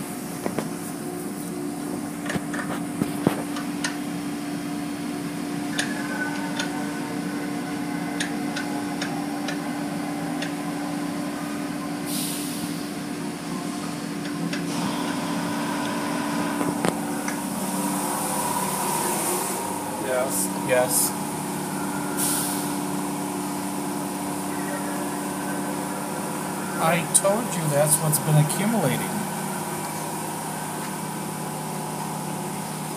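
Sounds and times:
car wash machinery hum: 0.0s - 32.9s
hissing rush: 17.6s - 23.4s.

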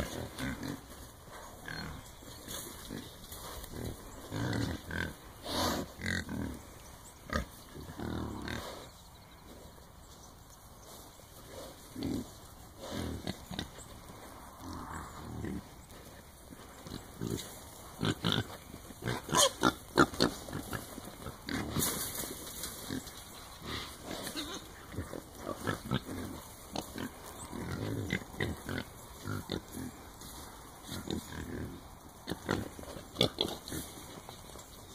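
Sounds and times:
hogs grunting: 11.4s - 34.4s.

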